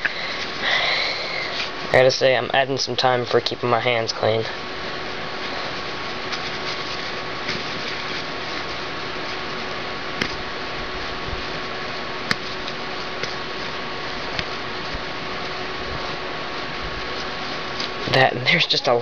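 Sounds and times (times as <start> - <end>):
room hiss: 0.0 - 19.0
paper towel rubbing plastic: 5.3 - 19.0.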